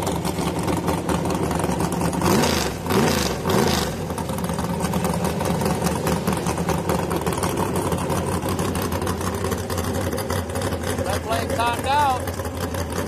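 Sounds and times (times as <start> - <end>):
truck engine idling: 0.0 - 13.0
truck engine revving: 2.2 - 4.3.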